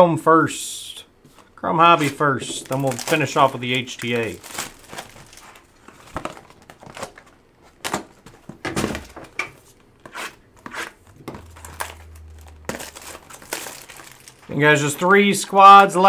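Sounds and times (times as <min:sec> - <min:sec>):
pack wrappers crinkling: 0:02.0 - 0:08.1, 0:11.3 - 0:15.6.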